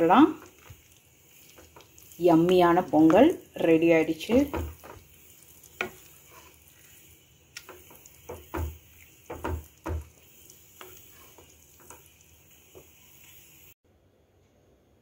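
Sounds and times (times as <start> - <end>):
spatula stirring thick rice: 0.0 - 13.2
spatula knocking against pot: 4.3 - 5.0, 7.6 - 10.2.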